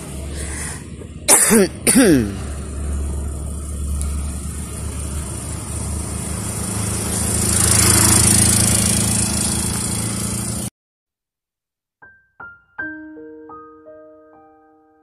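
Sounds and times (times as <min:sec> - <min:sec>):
small engine running: 0:02.2 - 0:10.7.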